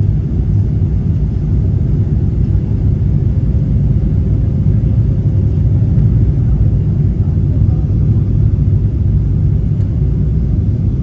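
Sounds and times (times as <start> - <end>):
airliner cabin engine rumble: 0.0 - 11.0.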